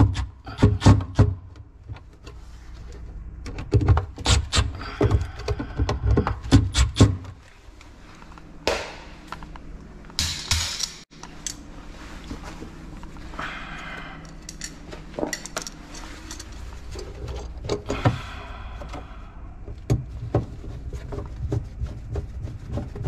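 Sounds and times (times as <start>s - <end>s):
handling and rustling noises: 11.2s - 13.4s, 14.2s - 18.3s.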